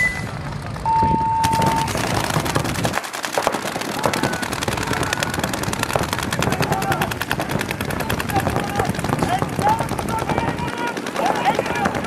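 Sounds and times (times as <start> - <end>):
steady beep: 0.9 - 1.9
rapid paintball marker fire: 1.4 - 12.0.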